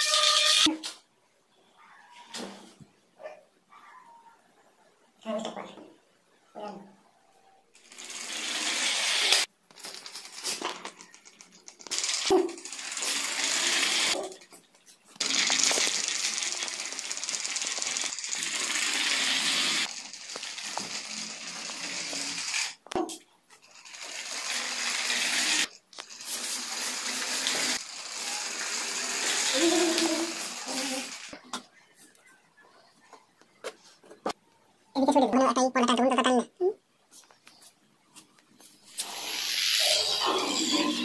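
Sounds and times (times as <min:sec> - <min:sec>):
small motor rattly buzz: 0:07.9 - 0:09.5, 0:12.0 - 0:14.2, 0:15.2 - 0:22.8, 0:23.8 - 0:31.4.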